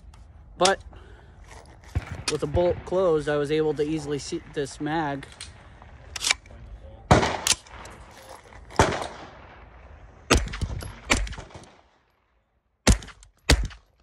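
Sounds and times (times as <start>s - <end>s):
suppressed gunshots: 1.8s - 3.4s, 7.1s - 12.0s, 12.8s - 13.9s.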